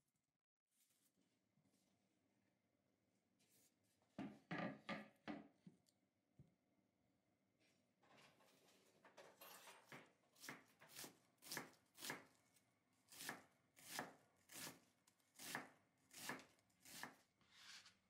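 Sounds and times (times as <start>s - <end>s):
knife chopping on wooden board: 9.9s - 12.3s, 13.1s - 14.8s, 15.4s - 17.2s.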